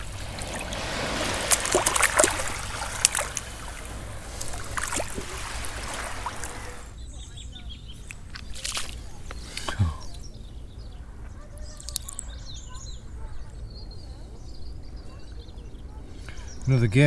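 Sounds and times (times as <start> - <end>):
hand splashing in shallow water: 0.0 - 6.9, 8.1 - 9.8.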